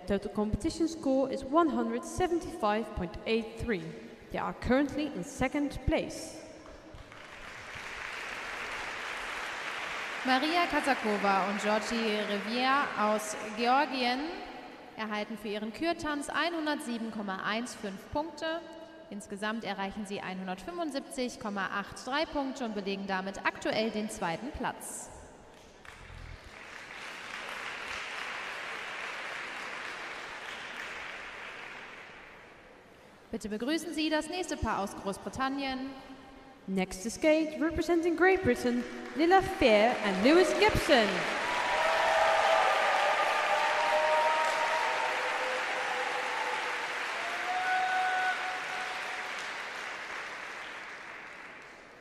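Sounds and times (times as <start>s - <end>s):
audience applauding: 6.6s - 13.0s, 25.8s - 32.6s, 39.0s - 52.0s.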